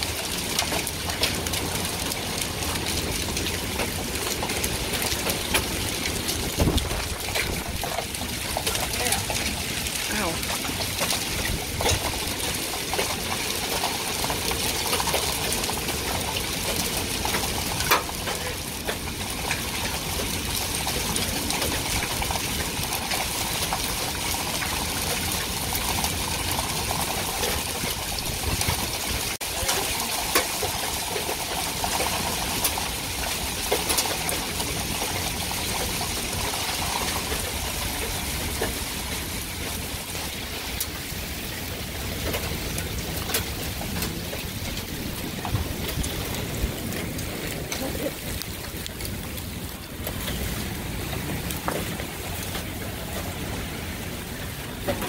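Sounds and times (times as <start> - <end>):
hailstones striking: 0.0 - 55.0
heavy rain: 0.0 - 55.0.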